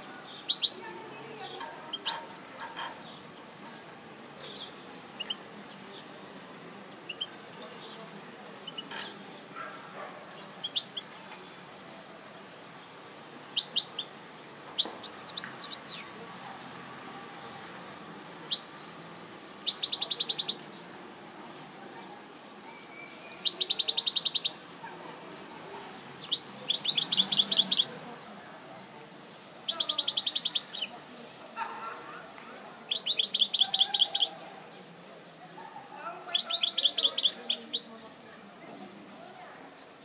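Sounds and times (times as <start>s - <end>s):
bird chirps: 13.4s - 16.2s, 19.5s - 20.6s, 22.7s - 24.5s, 26.2s - 28.0s, 29.6s - 30.9s.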